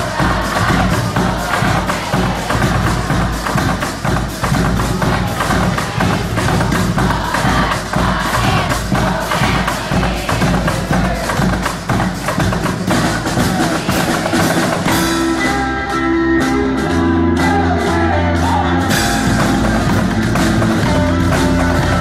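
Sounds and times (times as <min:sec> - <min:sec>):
heavy drumming: 0:00.0 - 0:22.0
electric guitar chords: 0:14.9 - 0:22.0.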